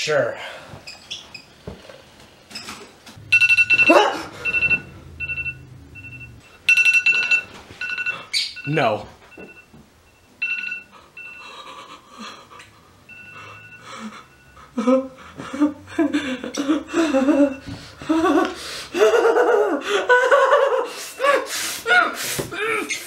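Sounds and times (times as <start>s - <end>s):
alarm clock beeping: 3.2s - 12.0s, 13.0s - 15.2s, 16.5s - 18.0s.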